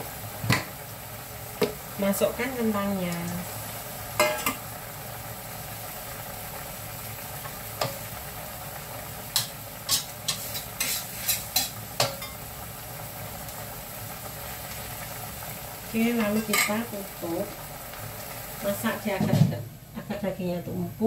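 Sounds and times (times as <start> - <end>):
sauce sizzling: 0.0 - 21.0
metal spatula clanking in wok: 4.2 - 4.6, 9.4 - 12.4.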